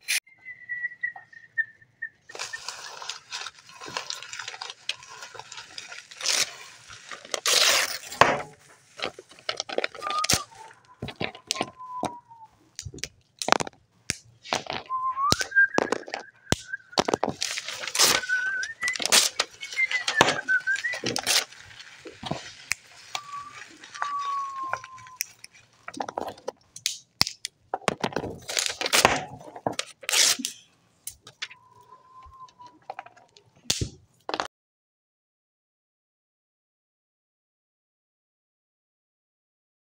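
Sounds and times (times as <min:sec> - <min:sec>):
whistled bird imitations: 0:00.3 - 0:02.7, 0:10.0 - 0:12.5, 0:14.9 - 0:17.2, 0:18.0 - 0:21.4, 0:23.2 - 0:25.2, 0:31.5 - 0:32.8
twigs cracking and snapping: 0:02.3 - 0:34.5.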